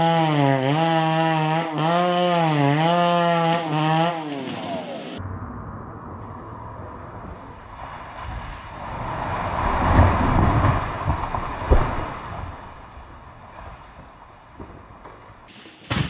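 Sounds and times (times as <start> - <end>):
low bumps: 3.2 - 16.0.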